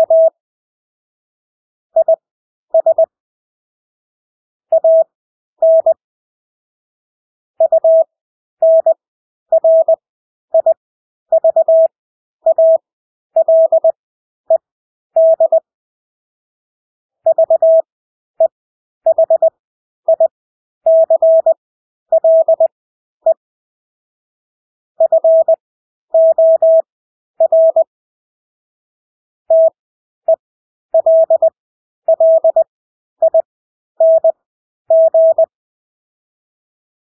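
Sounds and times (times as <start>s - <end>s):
morse code beeps: 0.0s - 0.4s, 2.0s - 2.2s, 2.8s - 3.1s, 4.7s - 6.0s, 7.6s - 10.0s, 11.4s - 11.9s, 12.5s - 12.8s, 13.4s - 14.6s, 15.2s - 15.6s, 17.3s - 18.5s, 19.1s - 20.3s, 20.9s - 23.4s, 25.0s - 25.6s, 26.2s - 27.9s, 29.5s - 30.4s, 31.0s - 35.5s.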